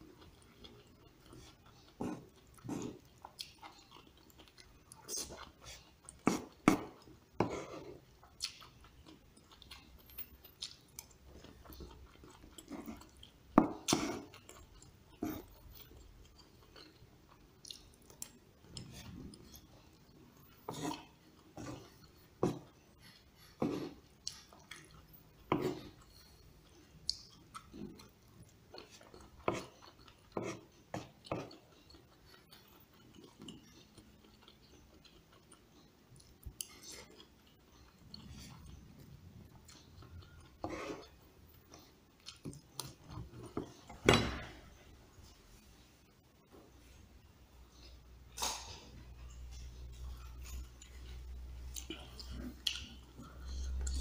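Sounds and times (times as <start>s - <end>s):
chewing and mouth noises: 0.0s - 44.0s, 47.7s - 54.0s.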